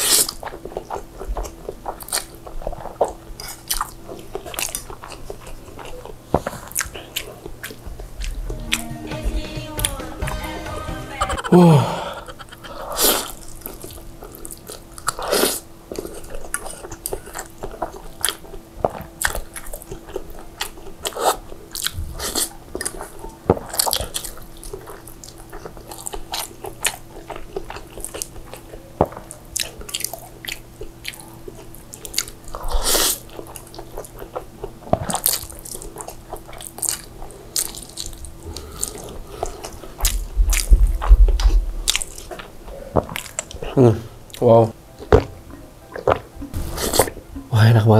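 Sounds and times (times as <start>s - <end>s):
slurping and chewing noodles: 0.0s - 8.8s, 11.3s - 45.2s, 45.9s - 47.4s.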